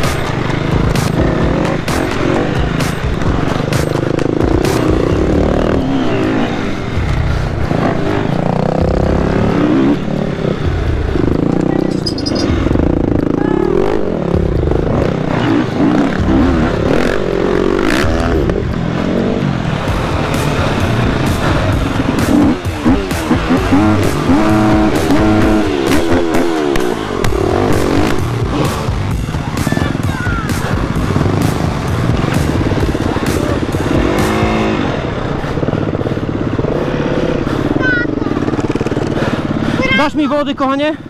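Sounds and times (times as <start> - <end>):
dirt bike engine revving: 0.0 - 41.0.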